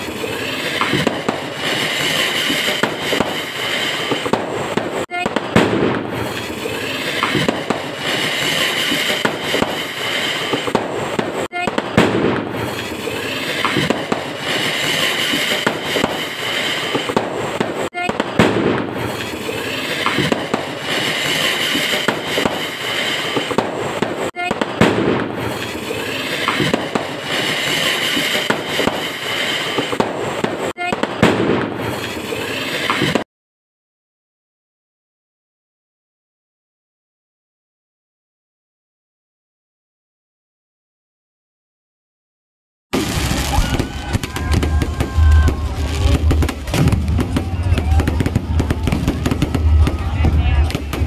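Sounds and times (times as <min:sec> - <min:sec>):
fireworks going off: 0:00.0 - 0:33.3, 0:42.9 - 0:51.0
people's voices: 0:43.1 - 0:51.0.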